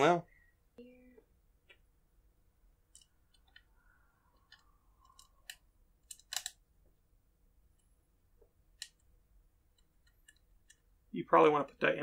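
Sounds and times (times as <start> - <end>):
small plastic and metal clicks: 2.9 - 3.7, 4.4 - 6.6, 8.7 - 9.1, 9.7 - 10.9.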